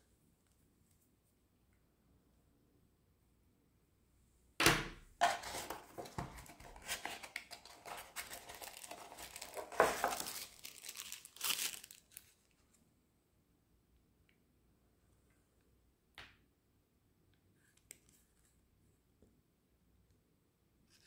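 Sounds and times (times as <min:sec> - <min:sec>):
paper packaging crinkling: 0:05.2 - 0:12.6.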